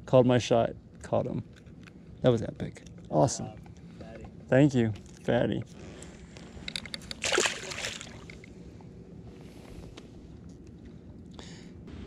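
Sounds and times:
fish splashing into water: 0:07.1 - 0:08.3.

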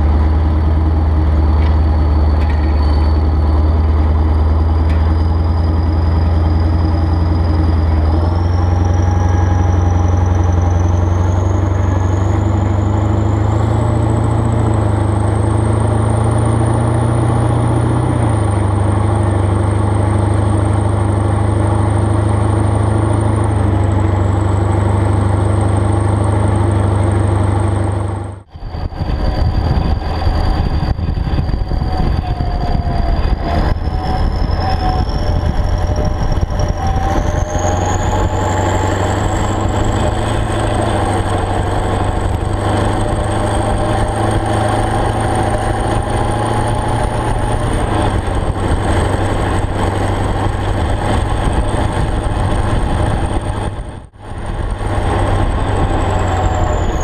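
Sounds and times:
tractor diesel engine running: 0:00.0 - 0:57.0
high whine rising in pitch: 0:26.9 - 0:57.0.

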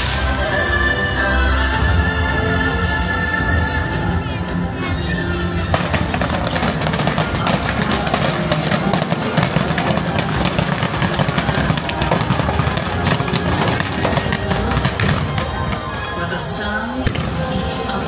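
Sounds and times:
fireworks popping and crackling: 0:00.0 - 0:00.9, 0:05.5 - 0:18.0
music with heavy drums: 0:00.0 - 0:15.8.

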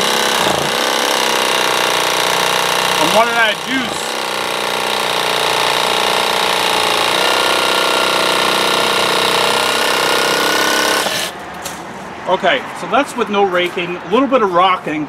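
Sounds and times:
reciprocating saw cutting wood: 0:00.0 - 0:11.4.

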